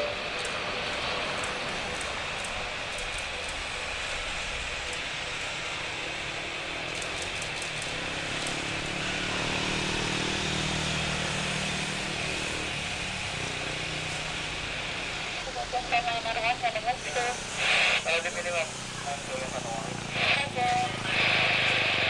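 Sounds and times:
jet engines with high whine: 0.0s - 22.0s.

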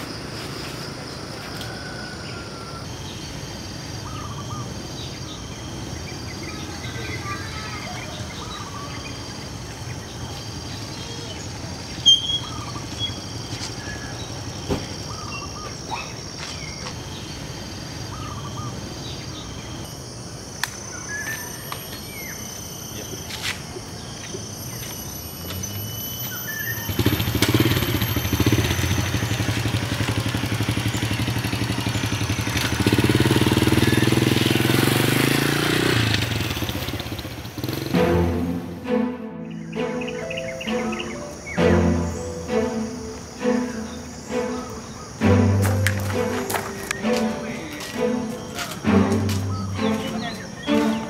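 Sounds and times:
birds chirping: 0.0s - 20.2s, 36.2s - 51.0s
motorcycle engine running: 26.9s - 38.7s.

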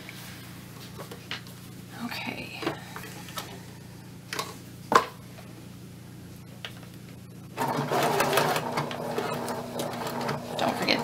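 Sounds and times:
sewing machine stitching: 7.6s - 11.0s.

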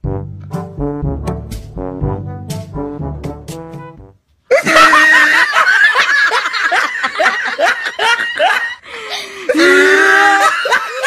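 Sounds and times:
woman laughing hard: 4.5s - 11.0s.

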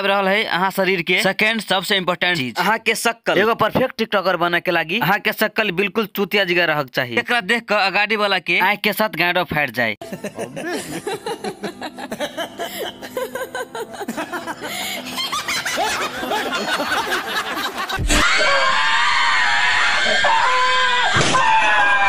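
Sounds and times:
people giggling and laughing: 10.0s - 18.0s
man screaming in fright: 18.0s - 22.0s.

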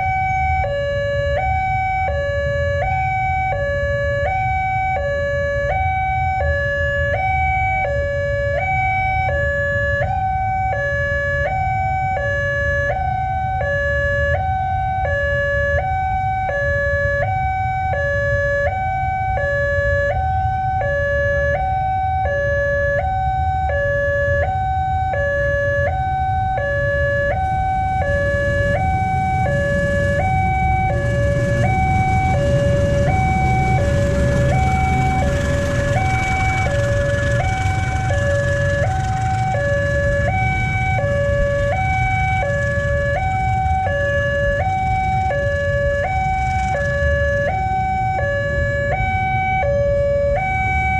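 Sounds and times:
level crossing two-tone siren: 0.0s - 50.9s
motorcycle engines idling: 26.2s - 49.4s
diesel train approaching: 26.2s - 50.9s.

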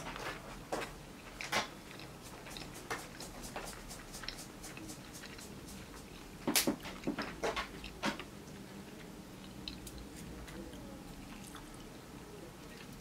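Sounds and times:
mouth clicks and chewing: 0.8s - 8.6s, 9.4s - 10.3s
wet mouth noises: 1.9s - 6.4s.

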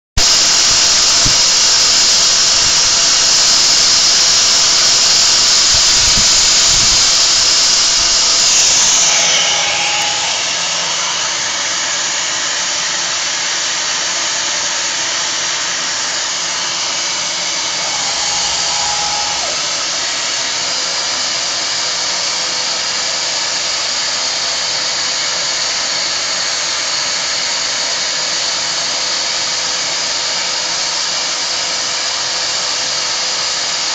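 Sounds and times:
machining spindle high hiss: 0.2s - 22.9s.

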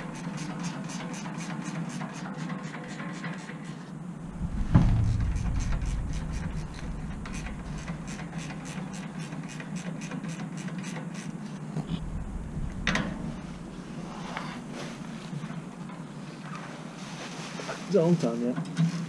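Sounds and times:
hand tools clicking and scraping: 0.0s - 3.8s, 5.3s - 11.6s
low steady rumble: 4.0s - 9.3s, 11.6s - 16.2s
metal clank: 4.3s - 9.1s.

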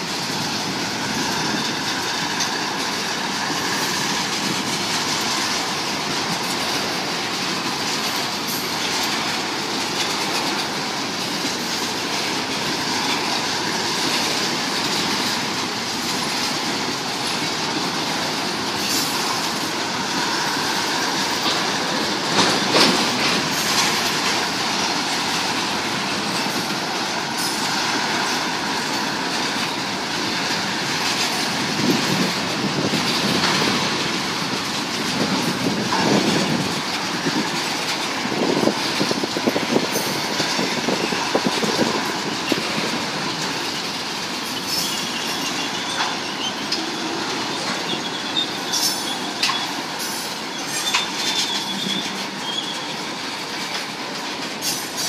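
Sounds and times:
train wheels rumbling on rail: 0.0s - 55.0s
wheels clacking on rail joints: 0.0s - 55.0s
faint wheel squeal: 44.5s - 52.9s.

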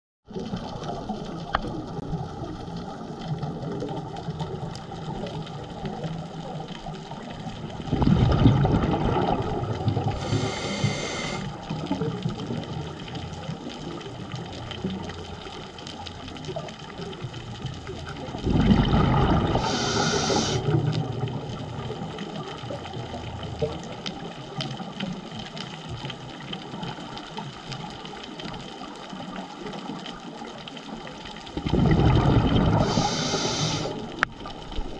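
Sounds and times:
exhaled bubbles rushing: 0.3s - 25.0s, 30.9s - 34.9s
muffled underwater noise: 0.3s - 25.6s, 26.6s - 34.9s
diver regulator breathing: 10.0s - 11.7s, 19.4s - 20.8s, 32.6s - 34.2s
short hiss: 19.6s - 20.6s, 32.8s - 34.0s.

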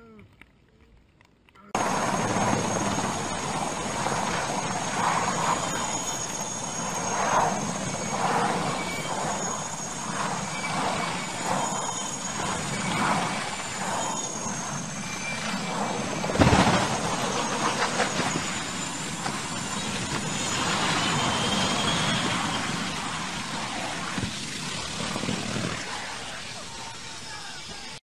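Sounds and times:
helicopter rotors and engines: 1.7s - 28.0s
heavy crash: 15.3s - 21.3s.

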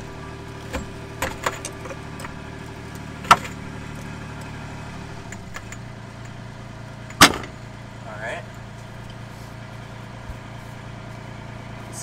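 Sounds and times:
engine running hum: 0.0s - 12.0s.

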